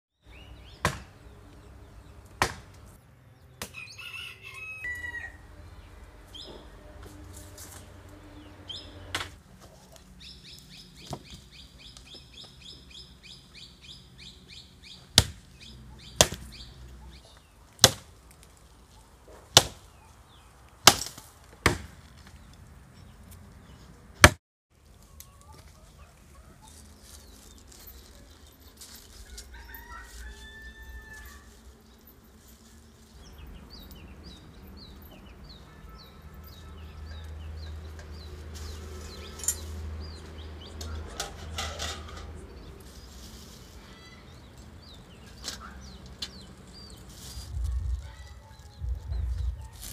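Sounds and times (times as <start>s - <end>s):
birds calling: 0.2s - 24.1s, 25.2s - 49.9s
axe chopping firewood: 0.7s - 1.2s, 2.3s - 2.8s, 15.1s - 15.5s, 16.1s - 16.6s, 17.8s - 18.5s, 19.3s - 19.9s, 20.8s - 22.1s, 24.2s - 24.4s.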